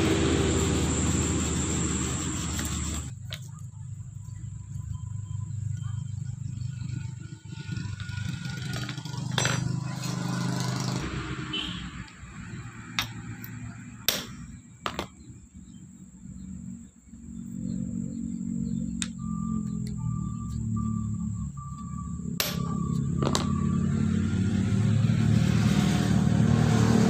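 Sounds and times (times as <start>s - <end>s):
steady low hum: 0.0s - 8.1s, 13.0s - 25.2s.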